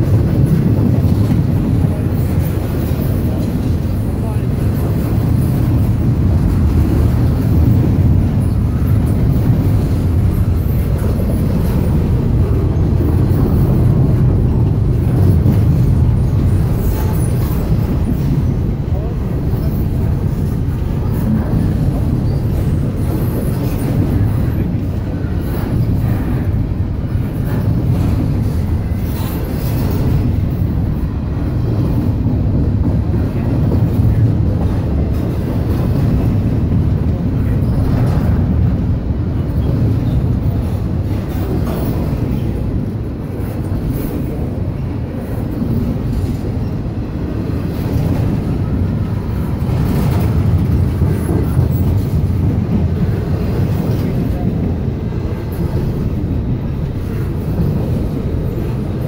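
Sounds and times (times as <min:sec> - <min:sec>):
freight train rolling past: 0:00.0 - 0:59.0.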